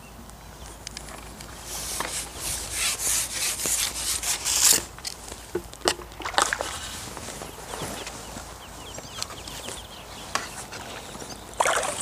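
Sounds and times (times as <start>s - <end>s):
pole sections scraping over rests: 1.0s - 5.7s.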